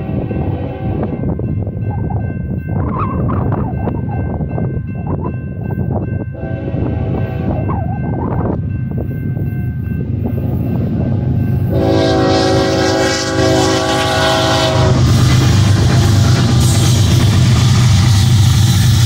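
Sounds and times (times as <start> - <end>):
train horn: 0.0 - 1.3, 6.4 - 7.8, 11.6 - 17.2
train cars clattering past: 1.0 - 19.0.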